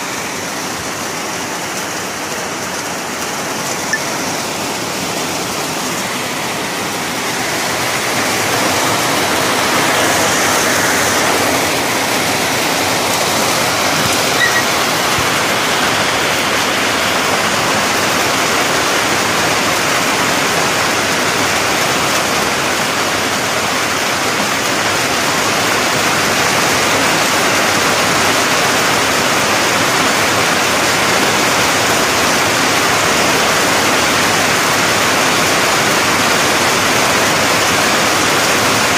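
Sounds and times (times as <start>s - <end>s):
heavy rain on foliage: 0.0s - 38.9s.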